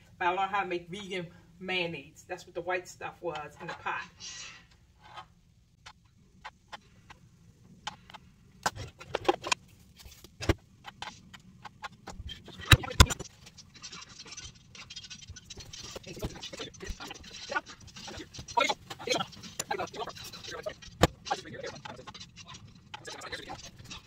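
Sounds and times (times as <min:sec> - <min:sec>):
paper rustling: 0:08.0 - 0:24.0.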